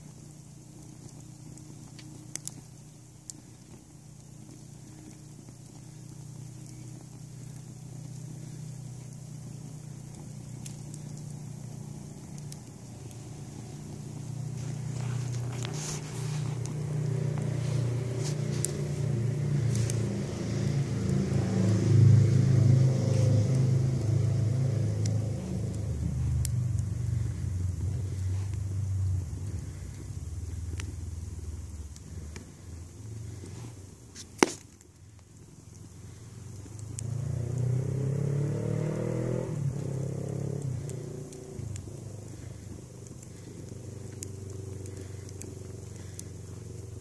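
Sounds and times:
fire burning with low rumble: 0.0 - 47.0
wood crackling and popping: 0.0 - 47.0
low droning sound: 9.6 - 33.3
sharp pop from fire: 34.1 - 34.8.

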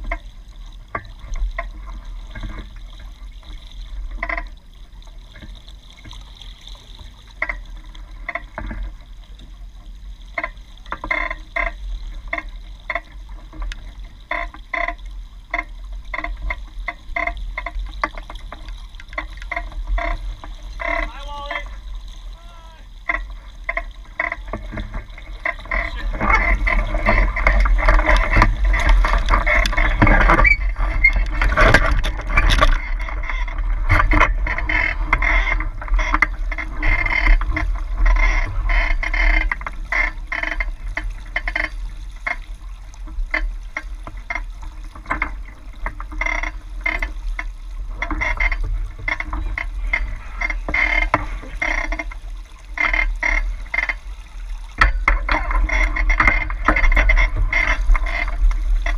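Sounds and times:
water splashing against a hull: 0.0 - 58.9
steady low rumble: 20.2 - 35.9.

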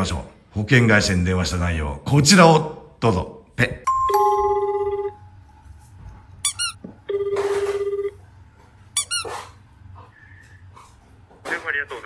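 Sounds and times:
telephone ringback tone: 3.9 - 5.3, 7.1 - 8.2
squeaky chirping: 6.4 - 6.8, 9.0 - 9.3.

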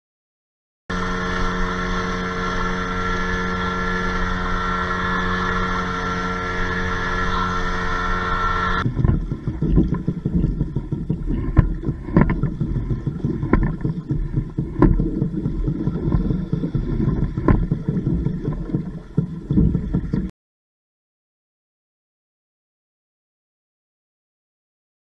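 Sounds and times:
wind on microphone: 0.9 - 20.3
water slapping against boat hull: 8.8 - 20.3.

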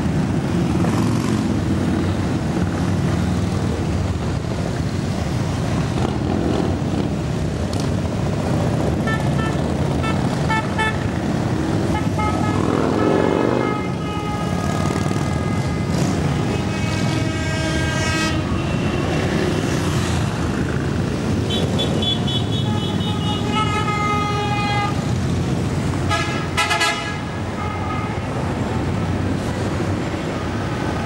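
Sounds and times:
motorcycles rumbling past: 0.1 - 4.4, 5.3 - 8.9, 9.7 - 21.4
horn blasts: 11.9 - 18.8, 26.1 - 27.2.

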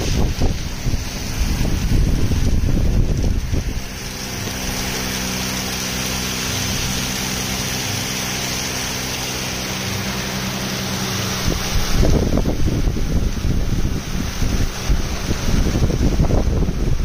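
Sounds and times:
grain pouring into steel hopper: 0.0 - 17.0
low machine hum: 0.0 - 17.0.

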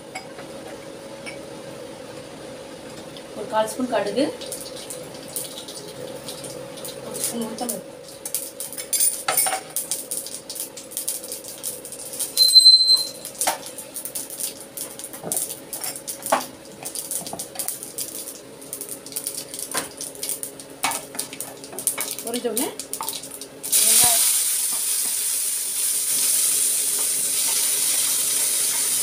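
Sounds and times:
short high ring: 12.4 - 13.2.

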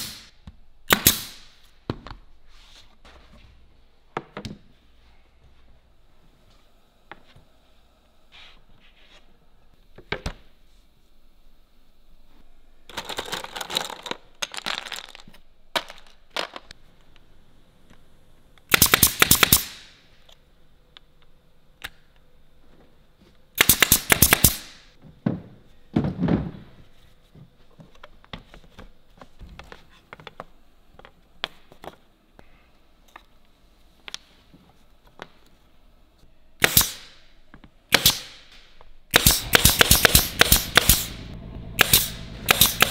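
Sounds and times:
pneumatic nail gun firing: 0.0 - 0.3, 0.9 - 1.5, 18.7 - 20.0, 23.6 - 24.9, 36.6 - 37.2, 37.9 - 42.9.

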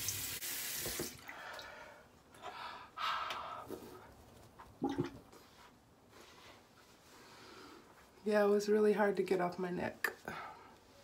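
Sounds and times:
sink tap running: 0.0 - 1.2.

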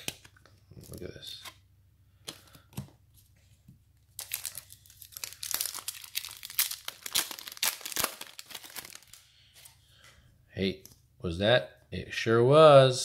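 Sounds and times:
wrapper crinkling and tearing: 4.1 - 9.2.

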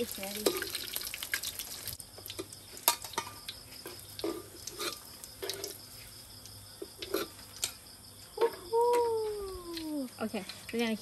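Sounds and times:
oil sizzling: 0.0 - 7.8
spatula scraping a wok: 3.1 - 6.1, 6.8 - 7.5.

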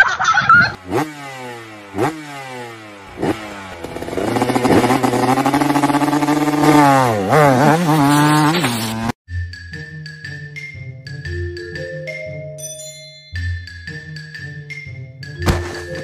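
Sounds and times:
motor scooter engine revving: 0.7 - 9.2.

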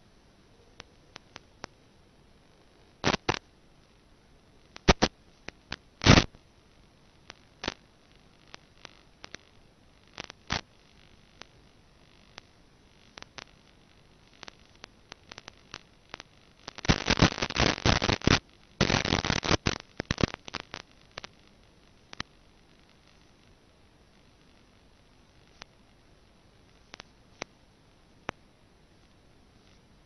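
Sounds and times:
sharp clicks and crackles: 0.8 - 1.8, 2.4 - 3.9, 4.6 - 6.4, 7.2 - 26.0, 26.6 - 27.6
radio static: 2.4 - 3.5, 4.6 - 25.9, 26.6 - 27.5
loud static bursts: 2.4 - 27.5.

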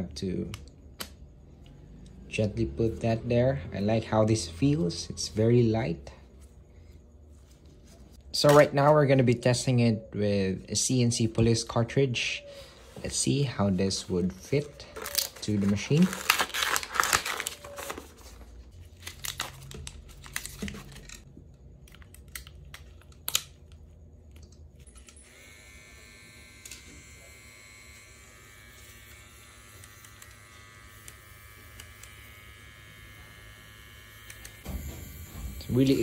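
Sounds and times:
quiet steady motor hum: 0.0 - 36.0
plastic packaging crinkling and tearing: 13.9 - 23.9.

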